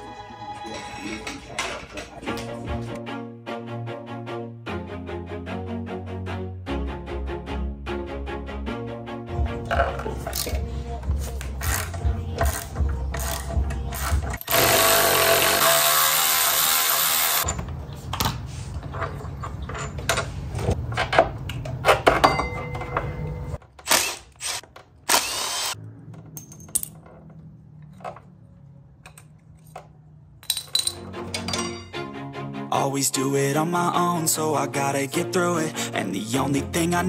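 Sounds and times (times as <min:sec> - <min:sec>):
background music: 0:00.0 - 0:17.4, 0:30.4 - 0:37.0
power tool running: 0:14.0 - 0:17.4, 0:23.8 - 0:25.8.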